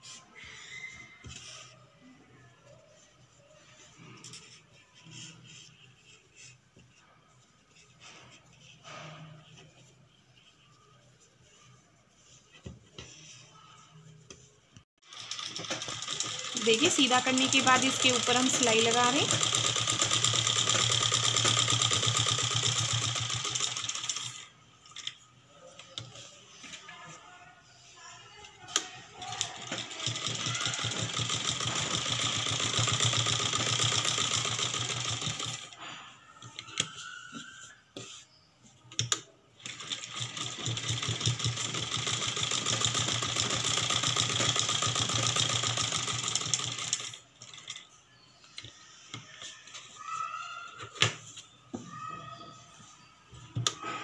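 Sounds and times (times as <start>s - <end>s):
sewing machine stitching: 15.0s - 25.1s, 28.7s - 35.8s, 39.0s - 47.9s.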